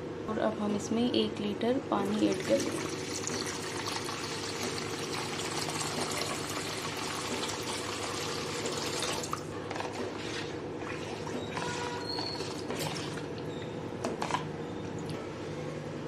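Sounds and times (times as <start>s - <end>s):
water pouring into a bowl: 2.1s - 9.5s.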